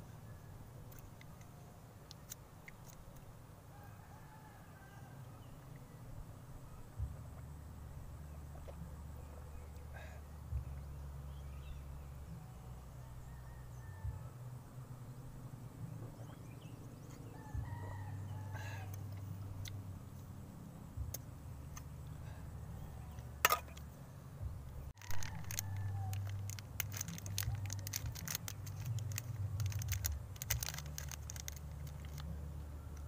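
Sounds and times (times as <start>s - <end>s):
faint chicken calls: 3.7s - 5.8s, 12.3s - 14.5s, 17.1s - 19.7s, 25.0s - 26.5s
low steady rumble: 4.5s - 33.0s
wrapper crackling: 25.0s - 32.3s.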